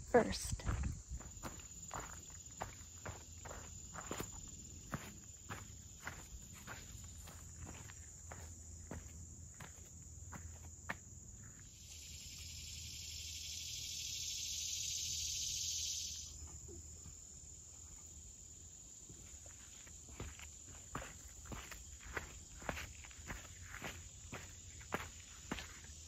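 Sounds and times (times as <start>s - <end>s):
footsteps on trail: 0.0s - 11.7s, 19.0s - 26.0s
insect high-pitched buzz: 0.0s - 26.0s.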